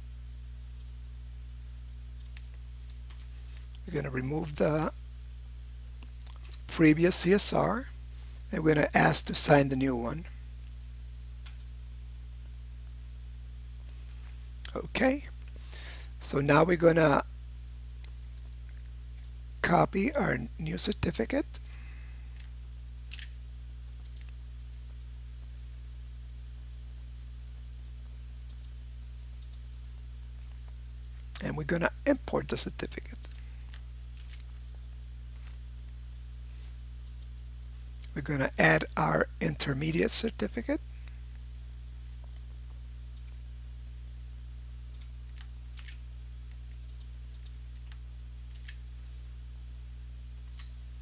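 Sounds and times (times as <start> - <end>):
steady low hum: 0.0 - 51.0
computer mouse clicks: 11.4 - 11.7, 23.1 - 23.3, 24.0 - 24.4, 28.5 - 28.8, 29.4 - 29.7, 37.0 - 37.3, 44.9 - 48.8.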